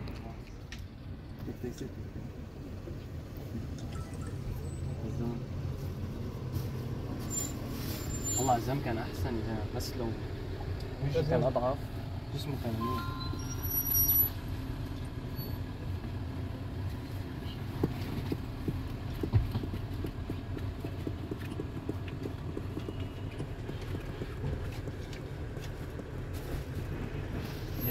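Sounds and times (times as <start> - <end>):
minibus engine rumble: 0.0 - 27.9
high electronic beep: 3.8 - 5.0, 12.8 - 14.3.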